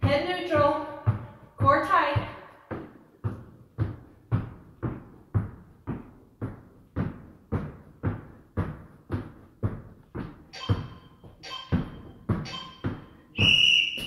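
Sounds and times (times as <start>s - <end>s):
sneakers thudding on rubber floor: 0.0s - 14.0s.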